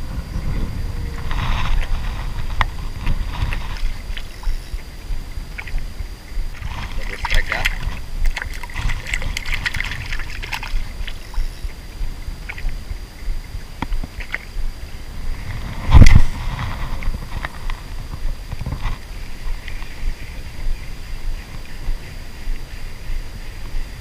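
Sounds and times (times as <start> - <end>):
river water lapping and sloshing: 1.2 - 15.7.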